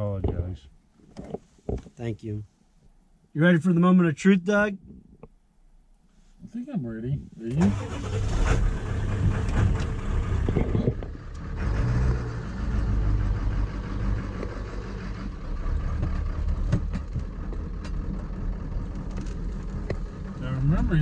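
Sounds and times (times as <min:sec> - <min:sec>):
diesel engine running: 0:07.7 - 0:21.0.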